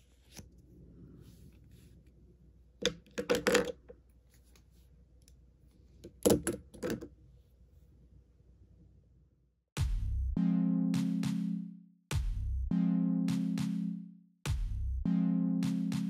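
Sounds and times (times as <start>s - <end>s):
pens clattering on wooden table: 2.8s - 4.0s, 6.0s - 7.1s.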